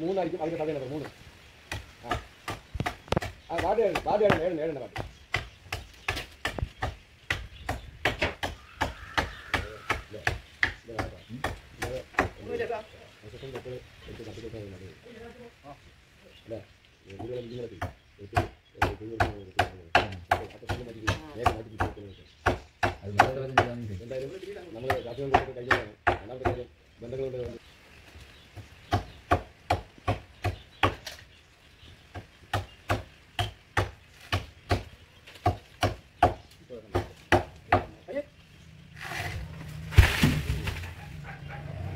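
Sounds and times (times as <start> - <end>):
sharp chopping knocks: 1.7 - 12.4, 39.9 - 40.9
chopping blows into palm trunk: 39.0 - 41.0.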